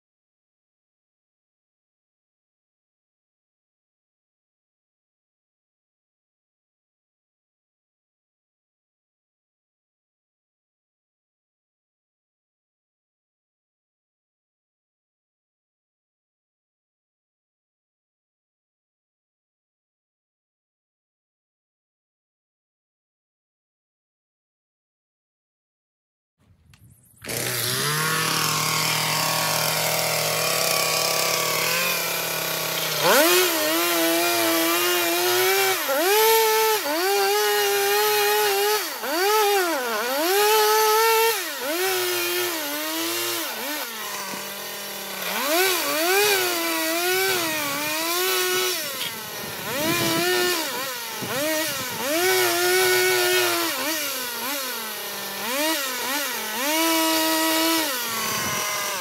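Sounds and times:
chainsaw cutting wood: 0:26.7 - 0:59.0
chainsaw idling: 0:27.2 - 0:59.0.

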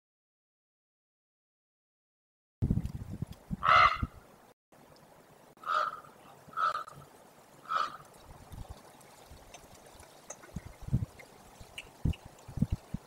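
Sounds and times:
raven calling: 0:03.6 - 0:04.2, 0:05.6 - 0:08.2.

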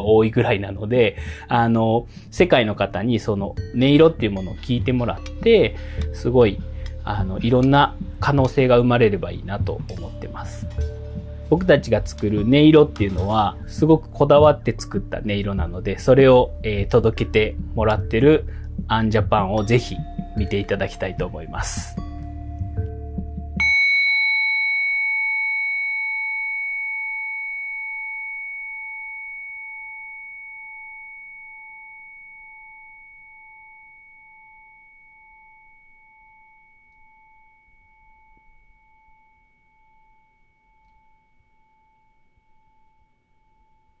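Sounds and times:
standing bell ringing: 0:23.6 - 0:28.7.

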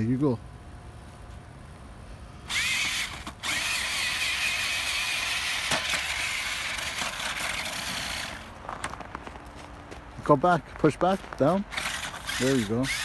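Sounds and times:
toy truck electric motor whining: 0:02.5 - 0:08.5, 0:11.7 - 0:13.0.

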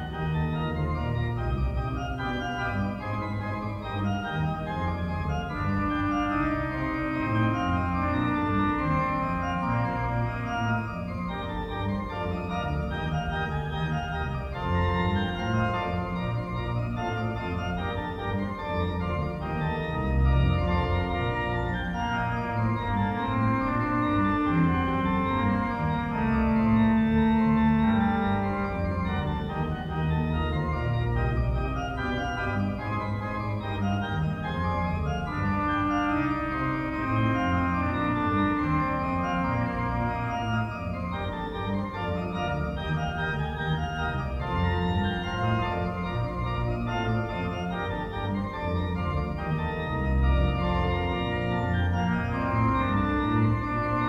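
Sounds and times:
organ music: 0:00.0 - 0:54.0.

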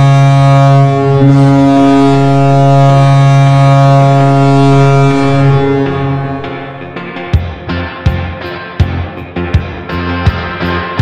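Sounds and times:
deep goal horn blast: 0:00.0 - 0:07.7.

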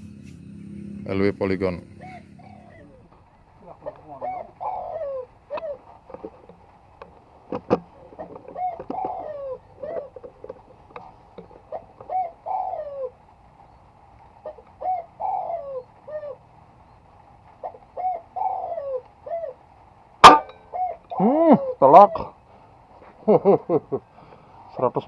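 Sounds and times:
dove cooing: 0:01.7 - 0:13.4, 0:14.4 - 0:16.6, 0:17.5 - 0:22.4.

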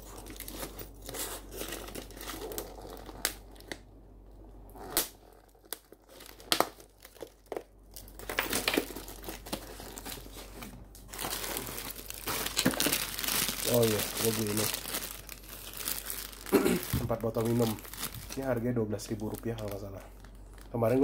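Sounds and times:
packaging crinkling: 0:00.0 - 0:03.9, 0:04.8 - 0:21.0
packing tape tearing: 0:11.1 - 0:18.4.

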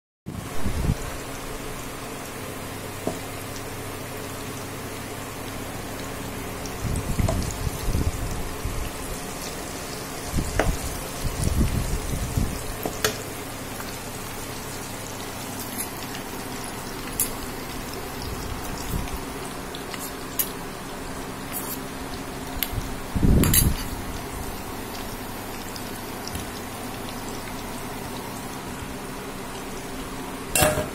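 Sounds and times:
oil sizzling in a pan: 0:00.4 - 0:30.9
metal spoon clinking against pan: 0:30.6 - 0:30.9.

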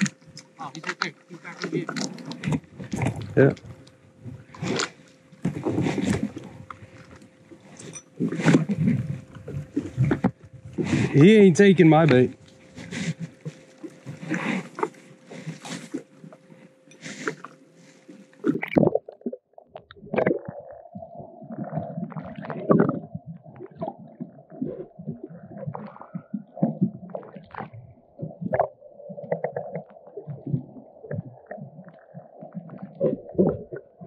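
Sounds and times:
seawater sloshing against jet ski: 0:00.0 - 0:18.5
muffled underwater gurgles and knocks: 0:00.0 - 0:34.0.

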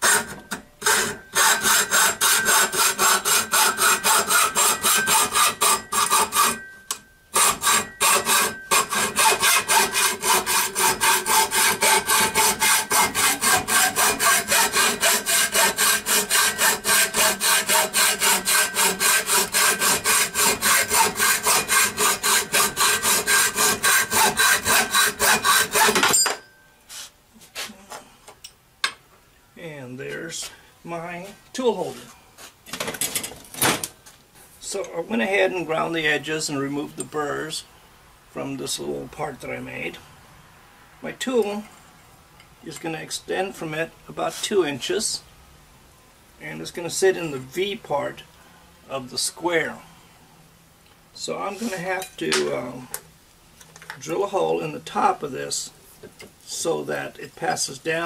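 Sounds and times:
hacksaw cutting metal tubing: 0:00.0 - 0:06.7, 0:07.3 - 0:26.2.

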